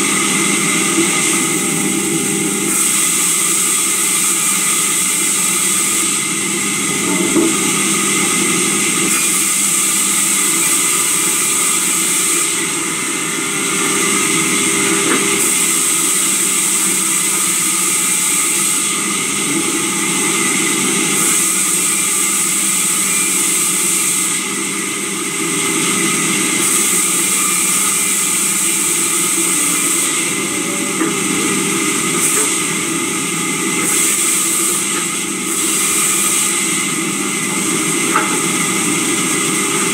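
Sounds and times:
sawmill saw humming: 0.0s - 39.9s
high hiss of blade cutting timber: 2.7s - 6.2s, 21.2s - 24.4s, 26.6s - 30.3s, 33.8s - 36.9s.

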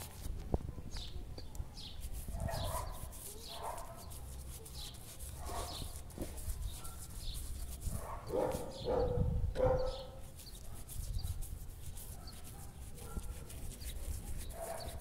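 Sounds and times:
dog barking: 2.4s - 4.0s, 5.4s - 5.8s, 8.0s - 10.9s, 12.0s - 13.5s, 14.5s - 15.0s.

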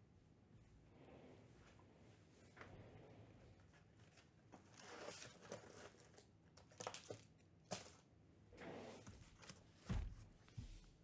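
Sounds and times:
packaging crinkling and tearing: 4.7s - 7.4s.

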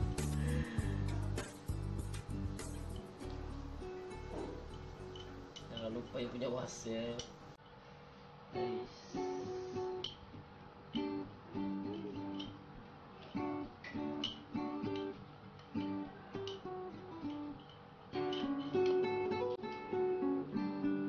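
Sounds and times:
guitar strumming chords: 0.0s - 6.0s, 8.5s - 12.7s, 13.3s - 21.0s.

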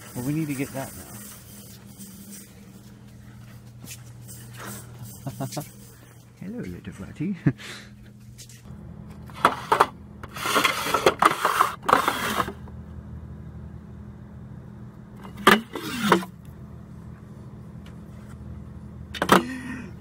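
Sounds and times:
steady low hum: 0.0s - 20.0s
metal cans rustling and scraping: 9.2s - 12.6s.

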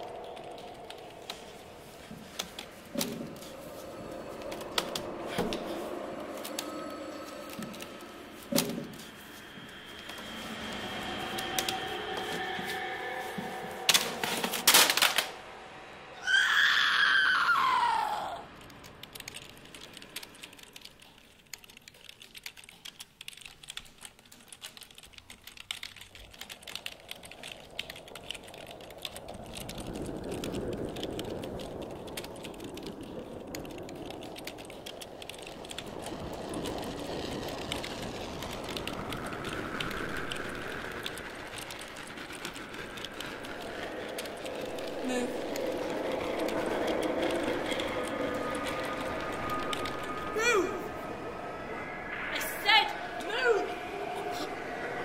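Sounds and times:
low hum: 0.0s - 22.0s, 25.7s - 55.0s
keyboard typing: 18.6s - 50.6s
sound sliding down in pitch: 37.8s - 55.0s.

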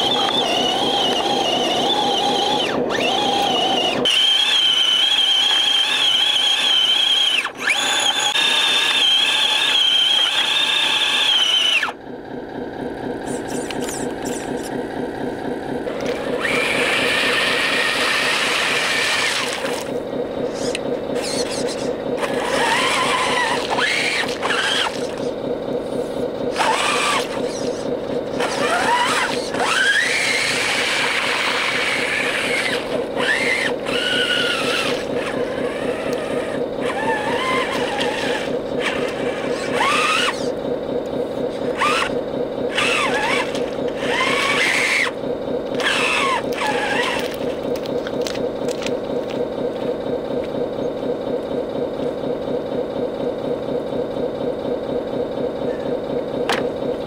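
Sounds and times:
toy truck electric motor whining: 0.0s - 12.0s, 13.2s - 14.7s, 15.9s - 25.4s, 26.0s - 40.6s, 41.4s - 48.9s.

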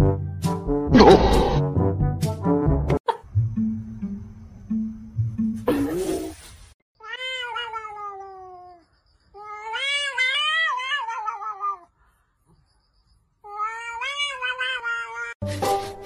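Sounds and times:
cat yowling: 7.0s - 8.8s, 9.4s - 11.9s, 13.5s - 15.4s.

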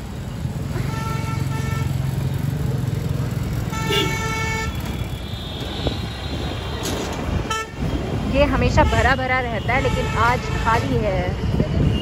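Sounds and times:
motorcycle engine running: 0.0s - 5.4s
street traffic: 0.0s - 12.0s
vehicle horn honking: 3.7s - 7.8s.

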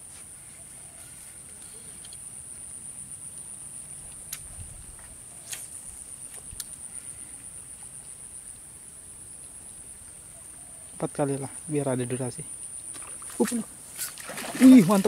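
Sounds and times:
insects trilling: 0.0s - 15.0s.

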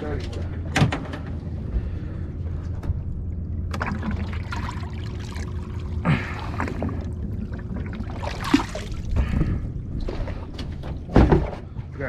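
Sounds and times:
steady low hum: 0.0s - 12.0s
water sloshing in bucket: 3.7s - 11.6s.

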